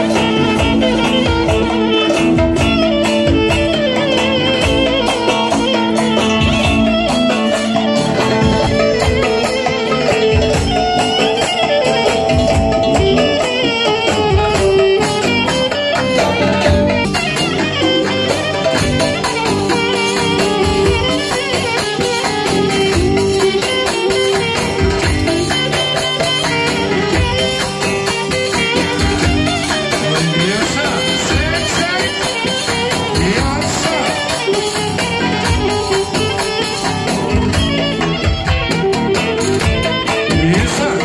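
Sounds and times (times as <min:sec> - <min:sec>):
clarinet playing a melody: 0:00.0 - 0:41.0
electric guitar: 0:00.0 - 0:41.0
electric keyboard: 0:00.0 - 0:41.0.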